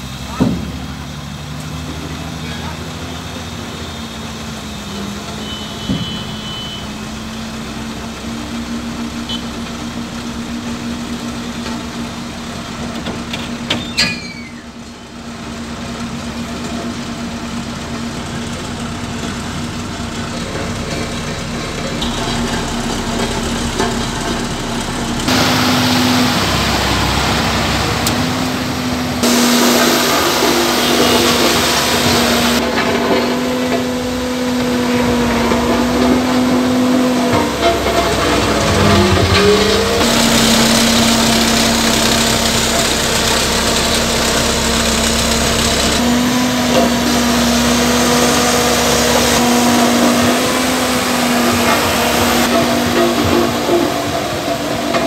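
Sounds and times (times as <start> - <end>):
diesel truck engine running: 0.0 - 55.0.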